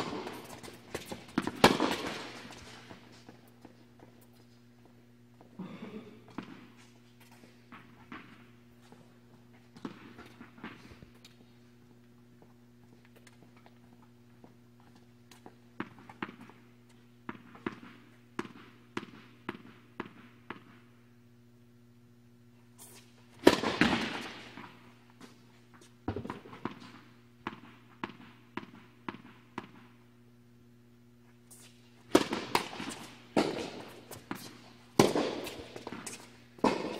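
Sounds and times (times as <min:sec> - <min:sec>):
racket striking ball: 0:00.0 - 0:02.8, 0:23.4 - 0:24.8, 0:31.6 - 0:36.9
tennis ball bouncing on hard court: 0:00.0 - 0:04.4, 0:15.3 - 0:16.6, 0:17.2 - 0:20.8, 0:23.4 - 0:24.8, 0:25.8 - 0:29.9, 0:31.5 - 0:36.9
low electrical hum: 0:00.0 - 0:36.9.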